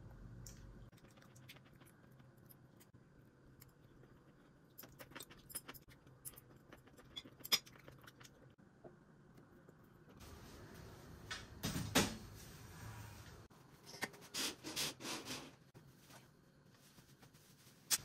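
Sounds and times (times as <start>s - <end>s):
low steady hum: 0.0s - 14.2s.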